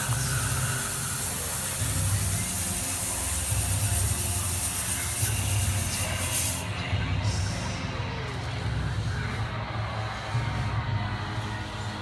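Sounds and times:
fog machine hissing: 0:00.0 - 0:06.7
background music: 0:00.0 - 0:12.0.

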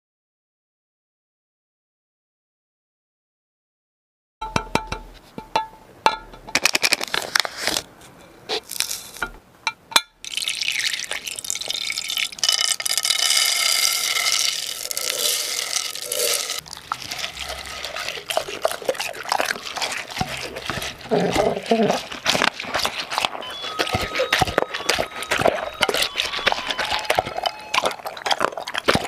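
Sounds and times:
treats clicking into container: 0:06.5 - 0:07.8
kibble pouring rattle: 0:06.6 - 0:07.8, 0:08.7 - 0:09.2, 0:10.3 - 0:27.8.

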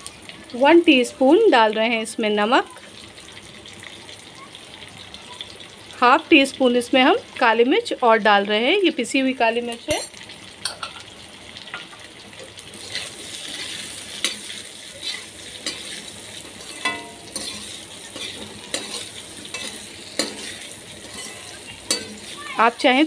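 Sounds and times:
vegetables sizzling in oil: 0:00.0 - 0:23.0
metal ladle scraping pan: 0:12.8 - 0:22.4.

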